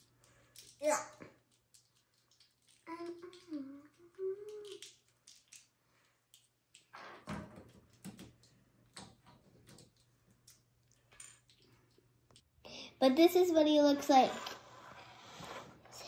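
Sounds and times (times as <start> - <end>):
plastic toy parts rustling and clicking: 0.0 - 12.5
child humming: 2.9 - 4.8.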